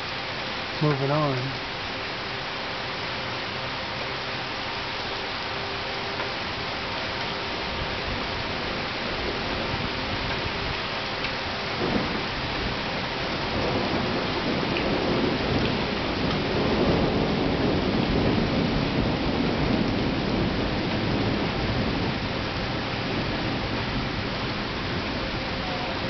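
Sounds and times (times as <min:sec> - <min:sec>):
steady rain: 0:00.0 - 0:26.0
thunder rolling: 0:11.7 - 0:26.0.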